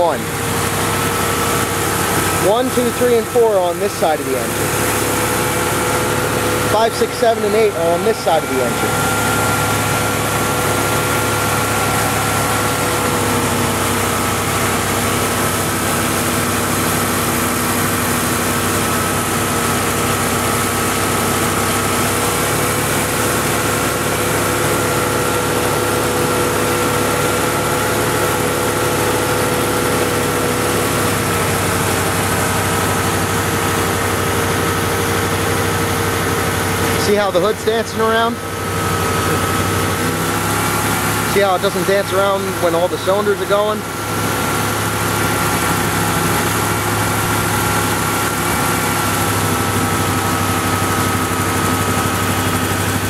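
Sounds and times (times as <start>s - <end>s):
misfiring engine idling: 0.0s - 53.0s.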